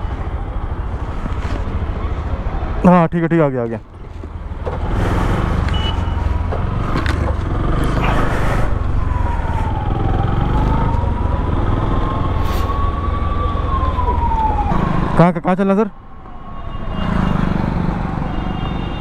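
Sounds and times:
wind: 0.0 - 19.0
motorcycle engine rumble: 3.8 - 14.7
siren wailing: 8.0 - 19.0.

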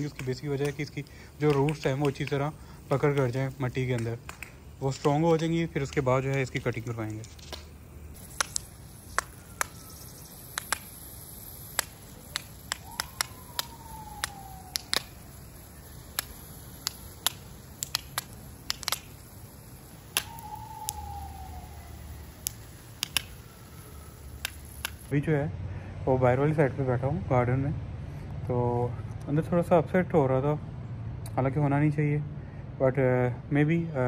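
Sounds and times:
sprinkler spraying water: 0.0 - 25.1.

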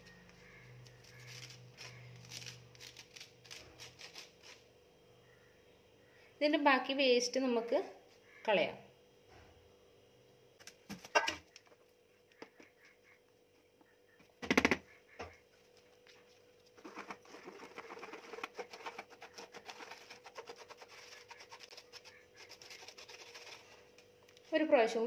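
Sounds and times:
spoon scraping flour through sieve: 16.8 - 24.0.

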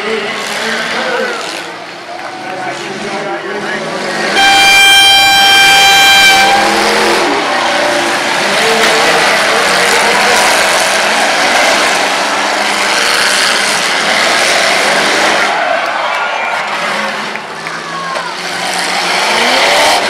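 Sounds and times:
car engines revving and racing: 0.0 - 20.0
air horn blast: 4.4 - 7.3.

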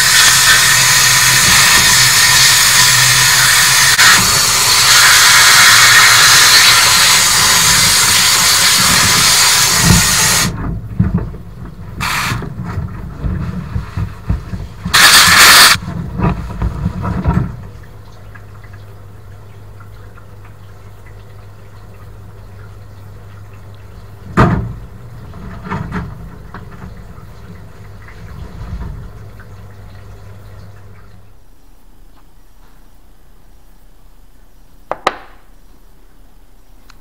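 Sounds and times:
spray gun hissing: 0.0 - 10.5, 12.0 - 12.4, 14.9 - 15.8
pump rumbling: 0.0 - 31.4
single knock: 34.9 - 35.4.

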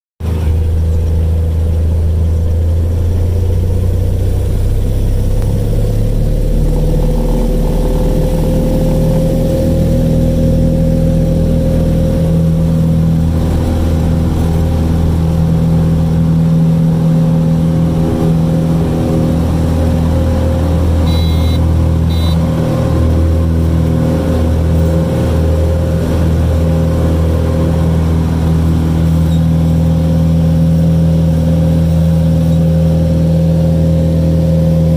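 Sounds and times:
airplane engine drone: 0.2 - 34.9
short high beeps: 21.1 - 22.4.

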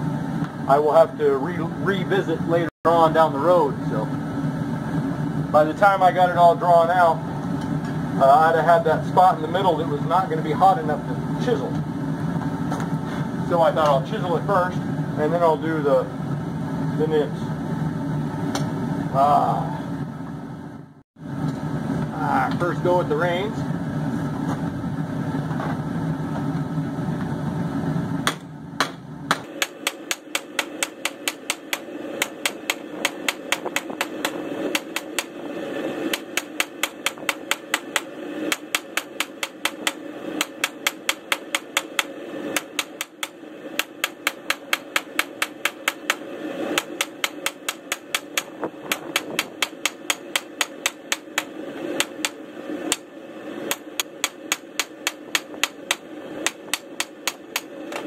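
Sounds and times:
hammer striking steel on anvil: 28.2 - 35.4, 36.1 - 53.1, 53.7 - 57.7.

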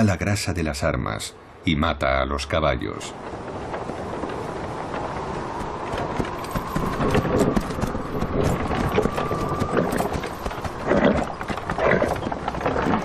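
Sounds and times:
horses' hooves clopping: 3.2 - 13.0
thin steady whistle: 5.5 - 10.4.

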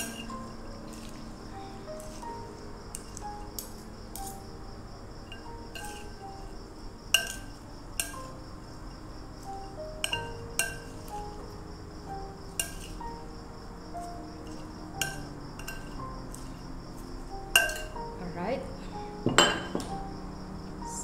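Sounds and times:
cutlery clinking against ceramic bowl: 0.0 - 1.1, 2.9 - 4.4, 5.3 - 6.2, 7.1 - 8.3, 10.0 - 11.2, 12.6 - 13.0, 14.4 - 16.5, 17.6 - 18.0, 19.2 - 19.9
soft background music: 0.0 - 21.0.

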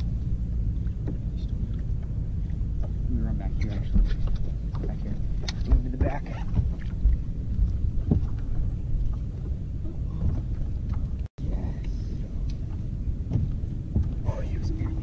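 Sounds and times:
wind and water rumble on microphone: 0.0 - 15.0
knocks on boat deck: 3.8 - 7.2, 13.2 - 14.2.

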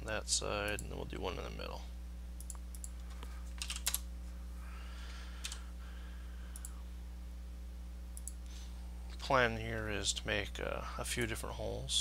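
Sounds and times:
low electrical hum: 0.0 - 12.0
keyboard and mouse clicks: 2.4 - 4.0.

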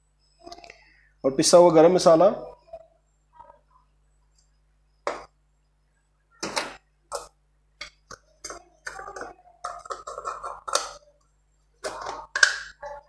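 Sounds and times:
utensils and containers knocking: 6.4 - 11.0, 11.8 - 13.0.

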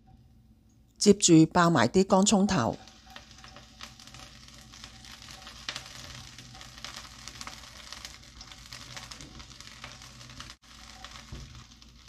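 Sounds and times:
ginger and shallot sizzling in oil: 1.2 - 12.0
spatula scraping and tapping wok: 2.8 - 12.0.

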